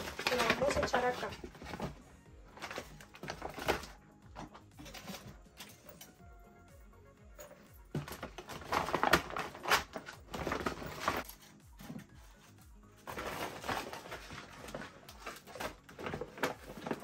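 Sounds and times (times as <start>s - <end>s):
foil gift bag crinkling: 0.0s - 4.0s, 8.0s - 11.4s, 13.0s - 17.0s.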